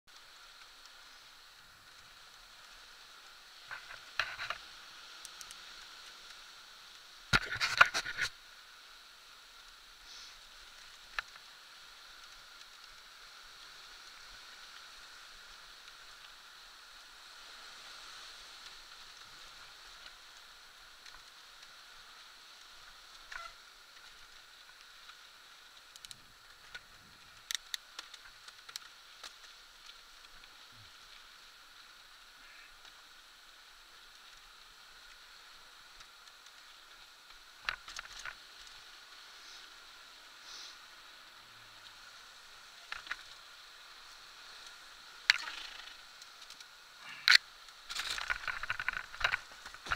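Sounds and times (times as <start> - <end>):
tyre and wind hiss: 0.1 - 49.9.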